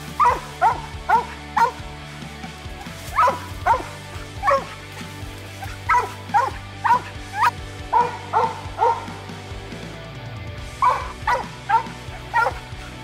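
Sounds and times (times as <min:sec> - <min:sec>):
dog barking: 0:00.2 - 0:01.8, 0:03.1 - 0:09.3, 0:10.8 - 0:13.0.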